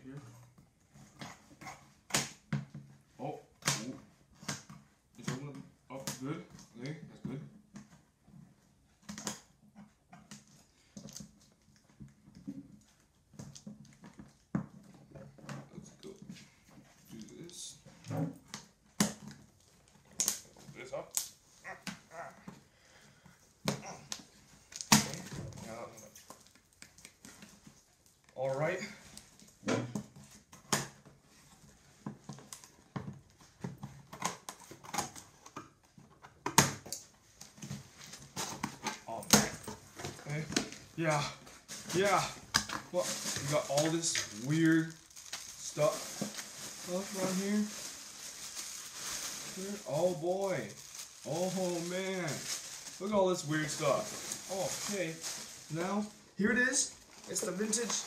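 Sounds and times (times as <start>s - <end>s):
tape ripping: 18.5s - 22.4s, 23.7s - 27.6s, 36.5s - 58.0s
cardboard crinkling: 23.7s - 58.0s.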